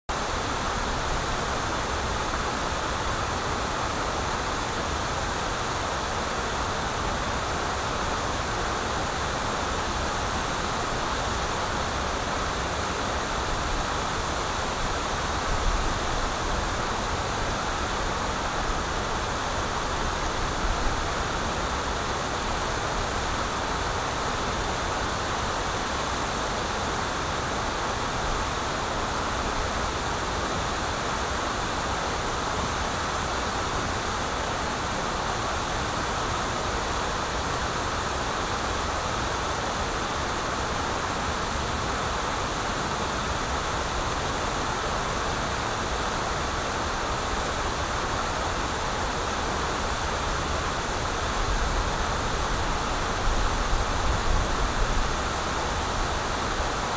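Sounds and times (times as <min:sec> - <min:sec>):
waterfall rushing: 0:00.1 - 0:56.9.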